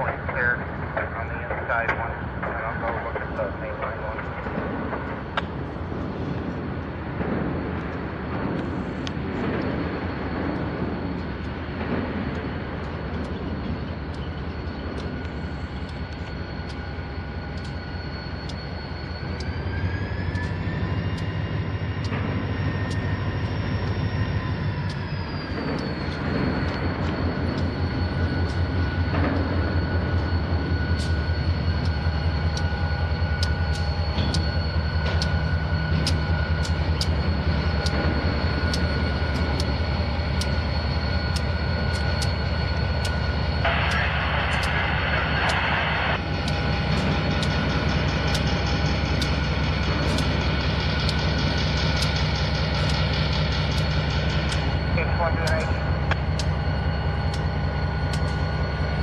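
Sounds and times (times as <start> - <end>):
diesel locomotive engine running: 0.0 - 59.0
sharp clicks: 12.3 - 21.4, 30.0 - 56.6, 58.1 - 59.0.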